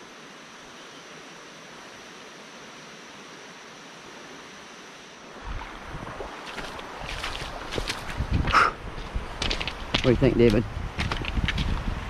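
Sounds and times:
creek water flowing over gravel: 5.2 - 12.0.

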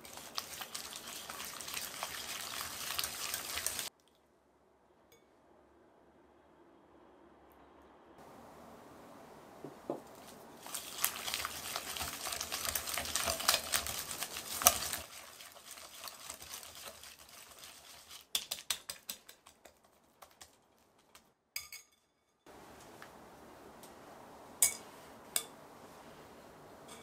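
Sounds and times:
utensil scraping in a bowl: 0.0 - 3.9, 10.1 - 20.5.

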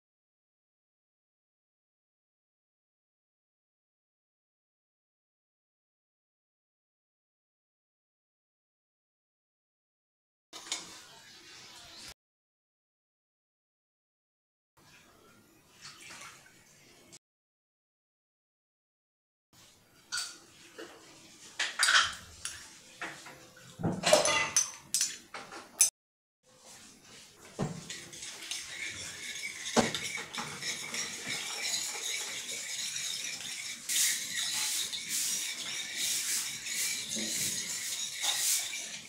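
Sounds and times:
dish clinking on glass bowl: 23.9 - 25.1
metal utensil stirring liquid: 26.5 - 39.0.

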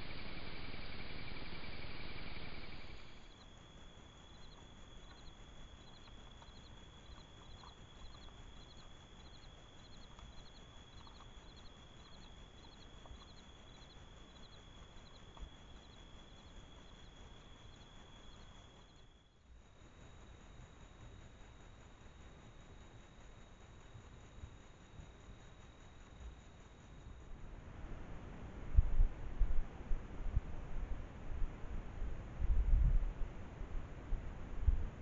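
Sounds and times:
insects trilling: 0.0 - 27.4
insect chirps: 0.0 - 27.5
soft ticks: 4.4 - 15.5.

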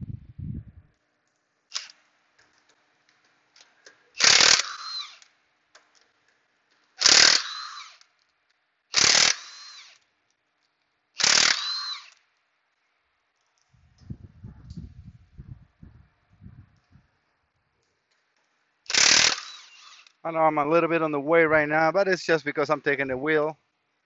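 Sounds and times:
impact wrench bursts: 1.7 - 2.0, 4.2 - 5.3, 7.0 - 8.0, 8.9 - 10.0, 11.2 - 12.2, 18.9 - 20.2.

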